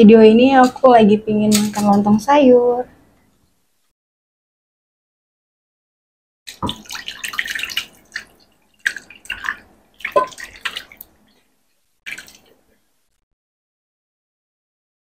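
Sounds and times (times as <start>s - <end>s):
rice cakes plopping wetly: 6.5s - 11.1s
broth splashing into bowl: 6.5s - 11.3s, 12.1s - 12.6s.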